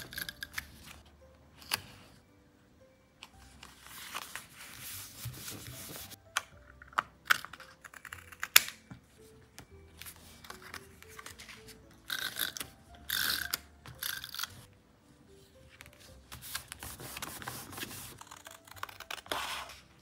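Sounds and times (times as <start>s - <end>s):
soft background music: 0.0s - 20.0s
paper and stickers rustling: 3.4s - 6.2s, 10.0s - 11.8s, 15.7s - 19.9s.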